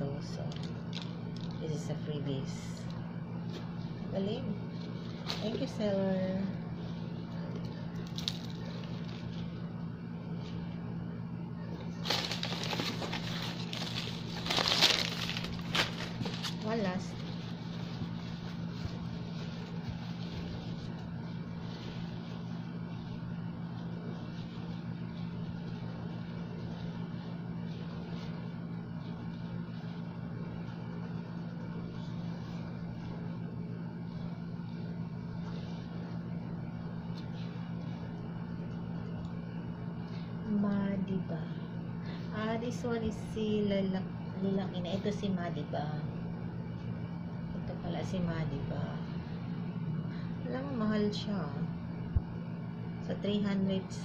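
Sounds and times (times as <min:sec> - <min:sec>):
steady low hum: 0:00.0 - 0:54.0
packing paper rustling: 0:06.8 - 0:09.6, 0:11.8 - 0:22.6.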